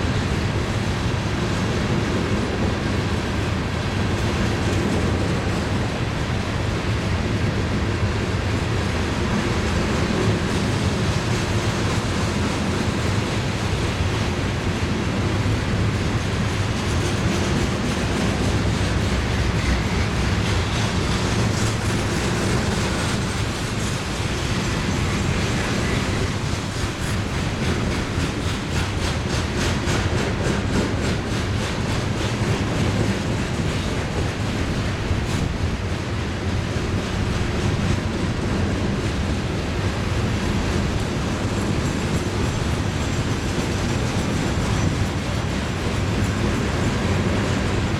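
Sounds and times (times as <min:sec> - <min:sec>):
train wheels rumbling on rail: 0:00.0 - 0:47.9
quick rail clicks: 0:08.4 - 0:47.9.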